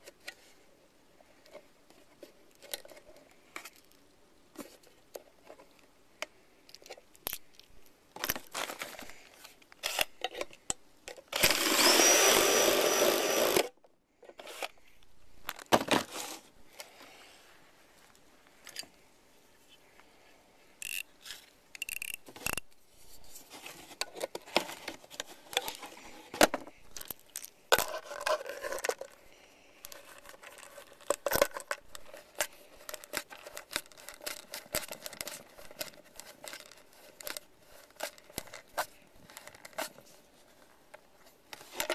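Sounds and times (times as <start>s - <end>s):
power drill whining: 11.3s - 13.7s.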